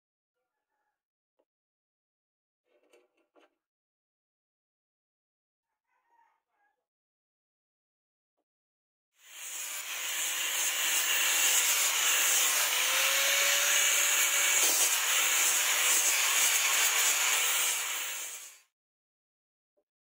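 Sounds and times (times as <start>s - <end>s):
abrasive hissing on wood: 9.2s - 18.6s
angle grinder motor whine: 9.2s - 18.6s.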